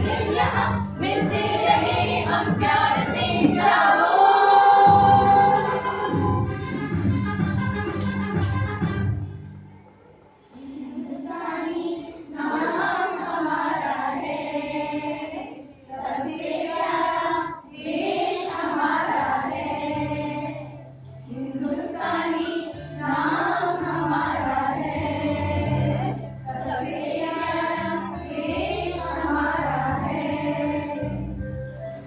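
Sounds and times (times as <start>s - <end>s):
women and children singing: 0.0s - 6.5s, 10.5s - 31.4s.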